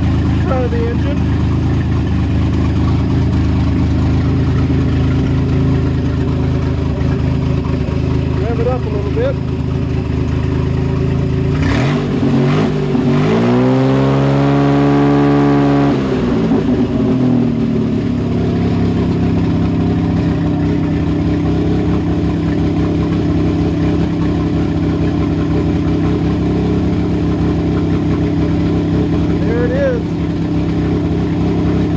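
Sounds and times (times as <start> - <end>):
boat engine revving and idling: 0.0 - 31.9.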